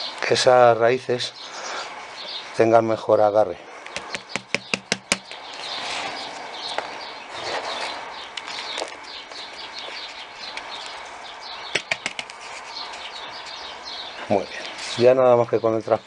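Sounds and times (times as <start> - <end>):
birds chirping: 0.0 - 16.0
potting soil rustling: 3.8 - 16.0
plastic plant pot clicks: 11.8 - 12.4.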